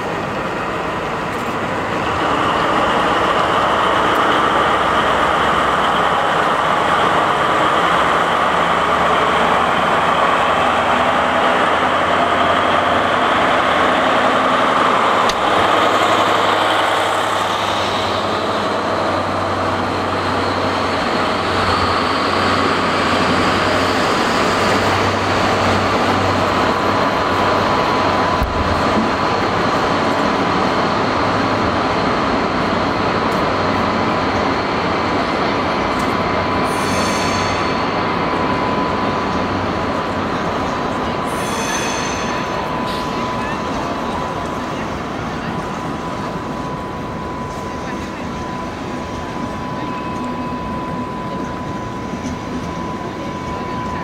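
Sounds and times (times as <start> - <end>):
diesel locomotive engine under load: 0.0 - 54.0.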